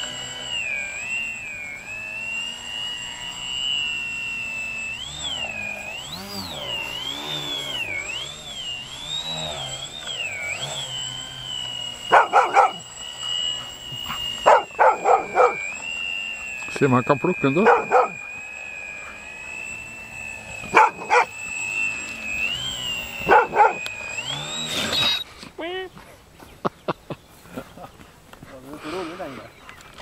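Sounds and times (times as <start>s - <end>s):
model airplane propellers whining: 0.0s - 26.6s, 27.4s - 30.0s
dog barking: 12.1s - 12.8s, 14.5s - 15.6s, 17.6s - 18.2s, 20.7s - 21.3s, 23.3s - 23.8s.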